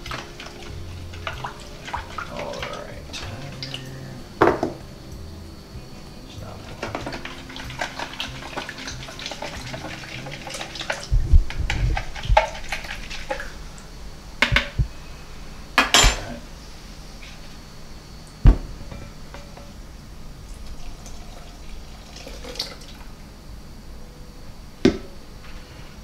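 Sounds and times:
bowl knocking: 0:04.4 - 0:04.9.

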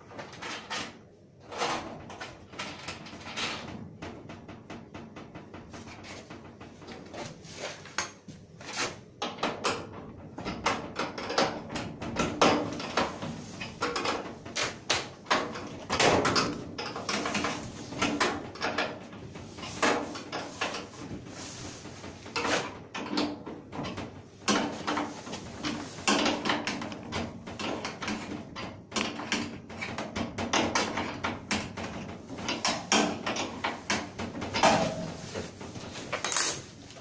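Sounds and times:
filter rustling and scraping: 0:12.0 - 0:30.0, 0:30.9 - 0:37.0.

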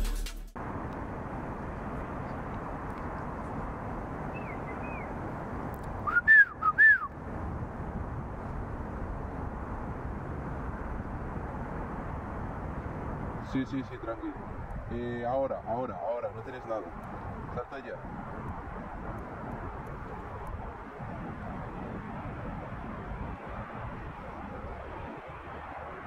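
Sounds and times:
person whistling: 0:06.0 - 0:07.1.

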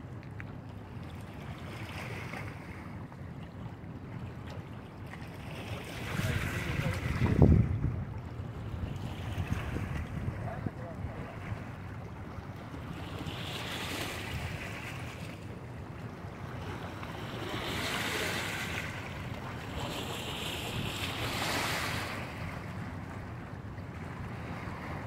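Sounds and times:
wind rumbling on microphone: 0:06.0 - 0:15.2.

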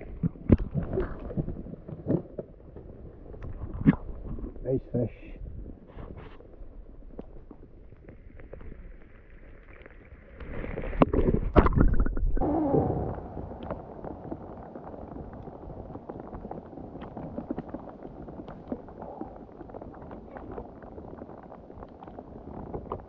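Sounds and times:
water splashing and gurgling: 0:00.0 - 0:04.7, 0:05.4 - 0:23.0
rain pattering on kayak: 0:12.4 - 0:23.0.

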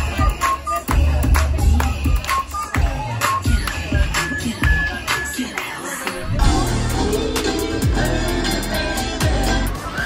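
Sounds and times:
upbeat music with heavy bass: 0:00.0 - 0:10.0.

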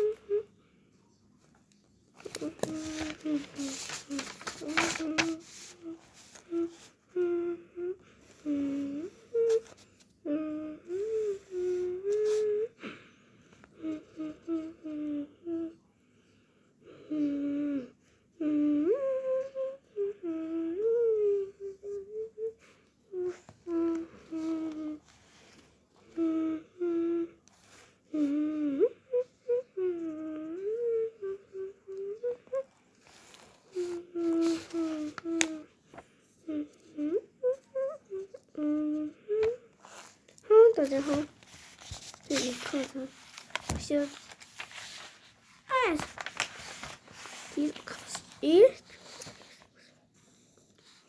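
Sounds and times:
person humming: 0:00.0 - 0:00.5, 0:02.2 - 0:13.0, 0:13.8 - 0:15.8, 0:16.9 - 0:25.0, 0:26.0 - 0:27.4, 0:28.1 - 0:35.7, 0:36.4 - 0:41.3.

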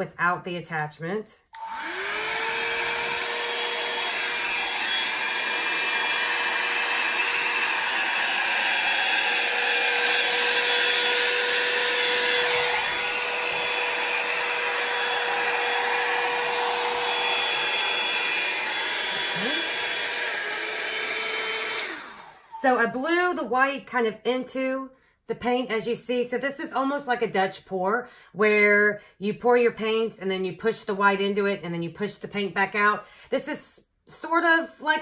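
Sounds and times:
hair dryer running: 0:01.5 - 0:23.0.

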